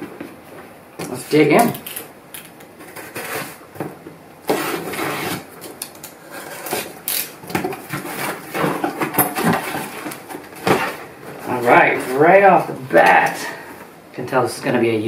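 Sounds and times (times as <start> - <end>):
box cutter slicing packing tape: 4.5 - 8.4.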